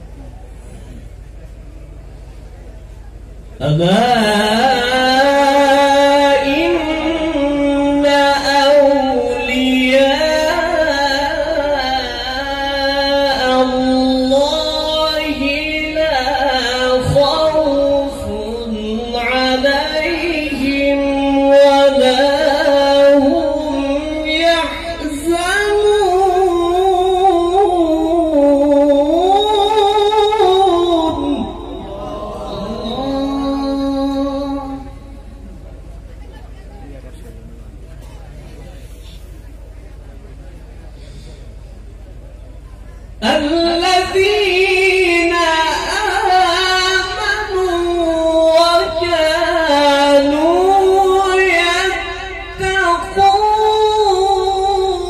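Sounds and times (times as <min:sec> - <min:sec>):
man reciting melodically: 0:03.6 - 0:35.4, 0:43.2 - 0:55.0.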